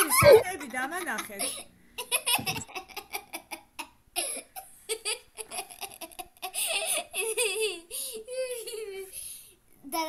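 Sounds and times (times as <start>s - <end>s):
woman laughing: 0.0s - 1.6s, 2.2s - 3.2s
girl giggling: 0.0s - 9.2s.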